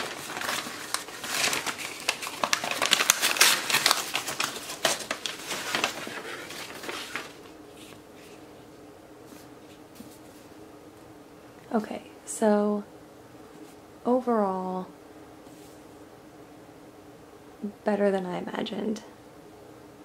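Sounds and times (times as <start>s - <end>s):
paper crinkling and rustling: 0.0s - 10.6s.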